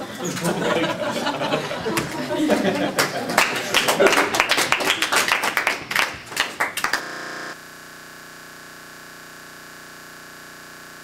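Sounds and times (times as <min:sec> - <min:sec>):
people clapping: 0:01.2 - 0:07.6
electronic hum of held tones: 0:06.9 - 0:11.0.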